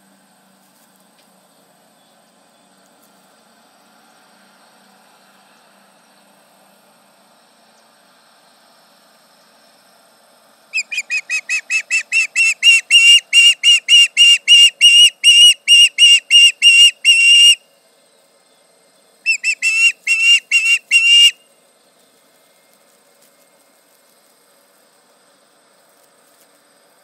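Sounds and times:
osprey alarm calls: 10.8 - 17.6, 19.3 - 21.4.

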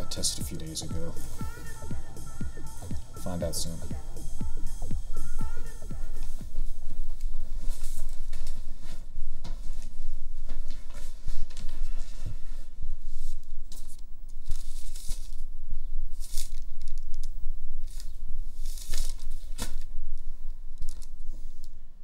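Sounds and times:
steady low hum: 0.0 - 22.0
paper tearing and rustling: 13.2 - 15.5, 16.1 - 17.2, 17.8 - 19.9.

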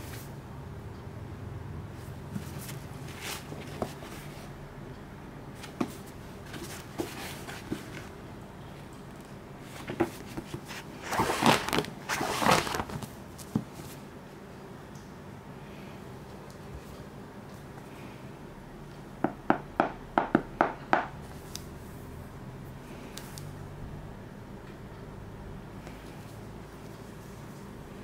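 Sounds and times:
paper rustling and crackling: 9.7 - 14.0.

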